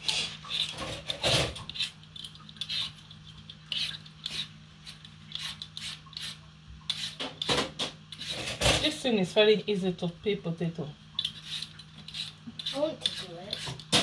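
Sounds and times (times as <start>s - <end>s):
peeler scraping potato: 0.0s - 2.0s, 2.6s - 3.1s, 3.7s - 9.0s, 11.2s - 14.0s.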